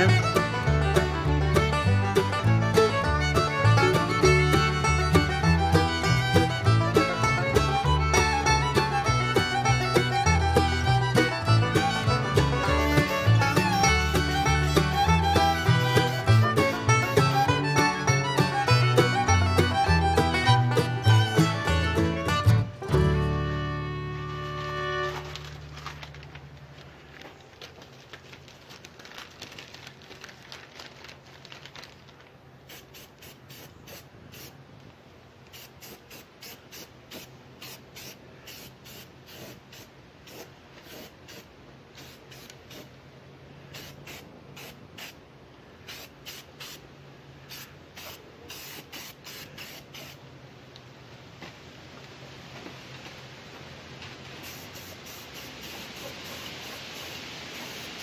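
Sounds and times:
spray can hissing in bursts: 32.6s - 34.6s, 35.5s - 43.0s, 43.7s - 45.2s, 45.8s - 46.8s, 47.5s - 50.2s, 54.4s - 58.0s.

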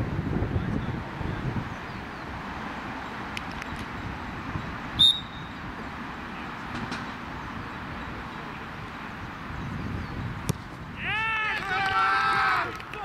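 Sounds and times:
referee's whistle blast: 5.0s - 5.5s.

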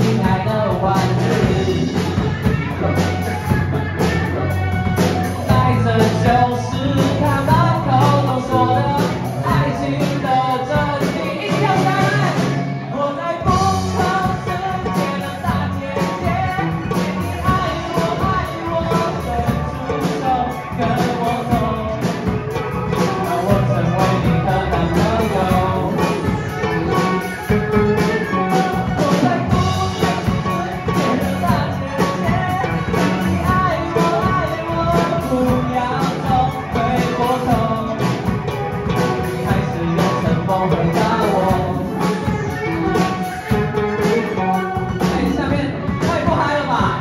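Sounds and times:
person singing: 0.0s - 47.0s
pop rock band playing: 0.0s - 47.0s.

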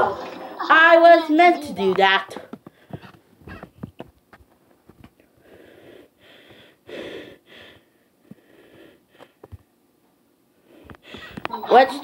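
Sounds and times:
boy breathing hard: 5.3s - 9.5s.

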